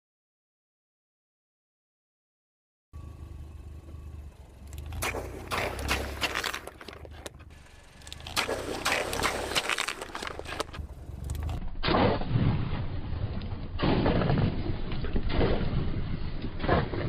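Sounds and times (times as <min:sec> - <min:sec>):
tyre crushing plastic bottles: 0:04.8 - 0:11.6.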